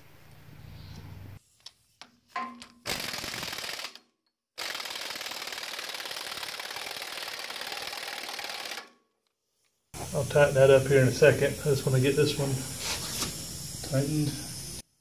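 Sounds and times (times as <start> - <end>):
impact wrench hammering: 2.4 - 4.0.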